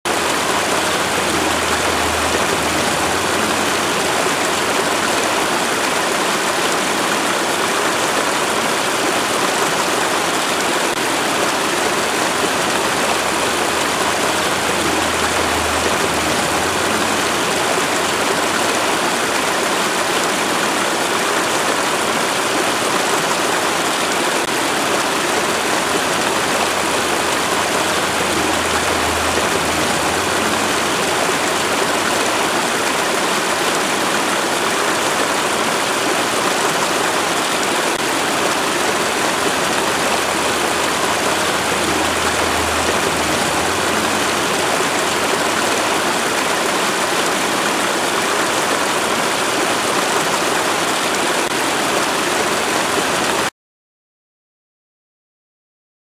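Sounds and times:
waterfall rushing: 0.0s - 53.5s
low hum: 0.1s - 5.5s, 11.9s - 18.4s, 25.4s - 32.6s, 39.3s - 45.9s.

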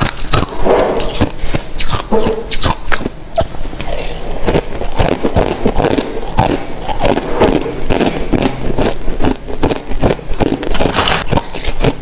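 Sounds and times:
ice being chewed: 0.0s - 12.0s.

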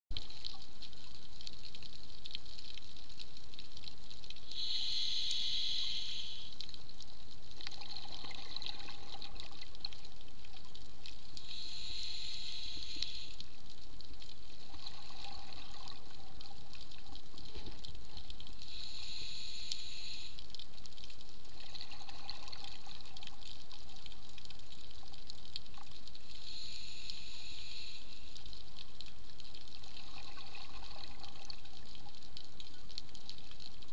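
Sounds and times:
regulator inhaling hiss: 4.4s - 6.6s, 11.4s - 13.6s, 18.6s - 20.5s, 26.2s - 28.5s
bubbling exhaled air underwater: 7.6s - 9.9s, 14.6s - 16.6s, 21.5s - 23.4s, 29.8s - 31.9s.

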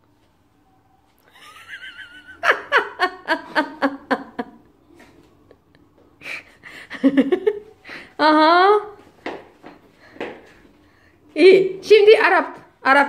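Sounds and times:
person laughing: 1.3s - 7.9s.

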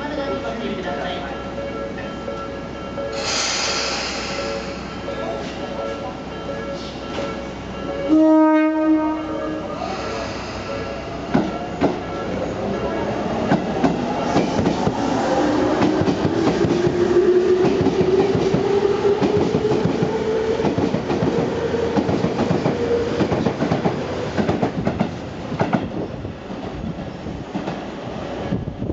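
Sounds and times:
train wheels clacking on rails: 9.9s - 12.0s, 13.4s - 26.7s.

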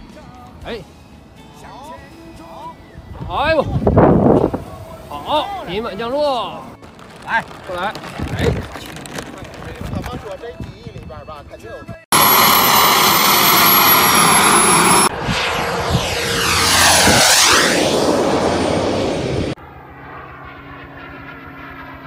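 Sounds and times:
model airplane motor whining: 12.2s - 15.1s
distant model plane drone: 12.2s - 22.0s
model plane passing close: 12.2s - 22.0s.

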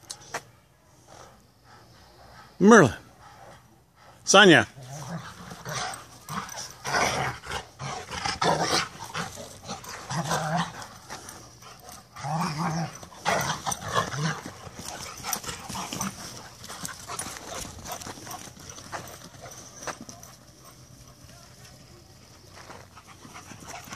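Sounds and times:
dogs growling: 4.8s - 20.2s.

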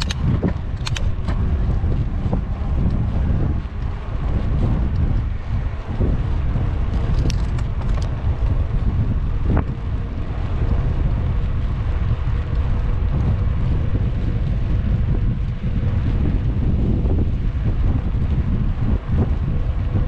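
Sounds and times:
sharp clicks: 0.0s - 1.4s, 7.0s - 8.2s
wind buffeting microphone: 0.0s - 20.0s.

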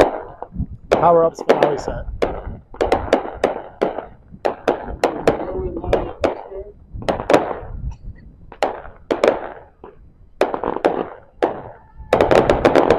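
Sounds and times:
firework crackle: 8.5s - 12.9s.

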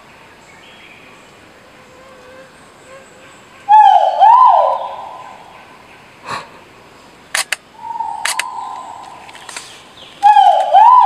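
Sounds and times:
bird whistled call: 3.7s - 5.4s, 7.8s - 9.2s, 10.2s - 11.0s
sharp clicks: 7.3s - 10.8s.

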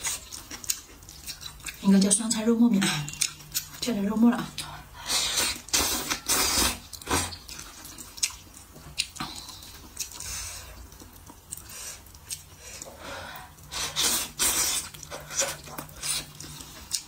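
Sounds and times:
chewing: 0.0s - 17.0s
wet noodle slurps: 5.0s - 7.4s.

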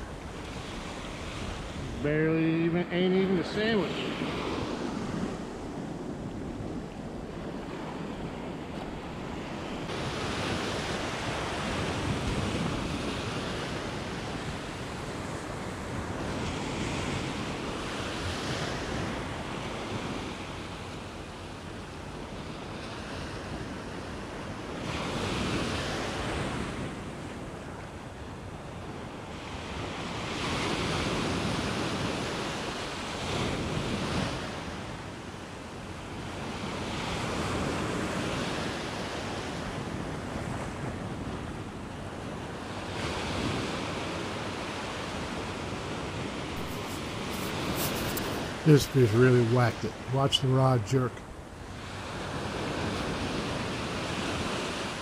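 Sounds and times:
small surf washing over sand: 42.5s - 50.8s.

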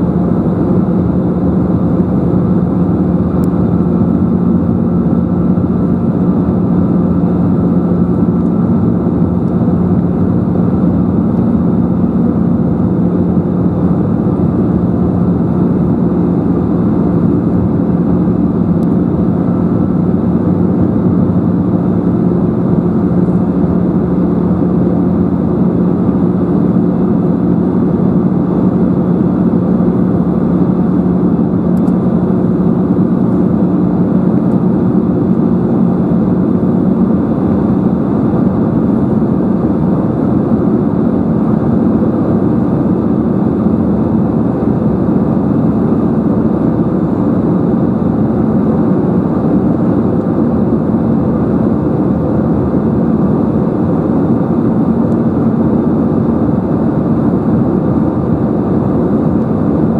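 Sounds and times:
airplane cabin drone: 0.0s - 59.9s
low hum: 0.0s - 59.9s.

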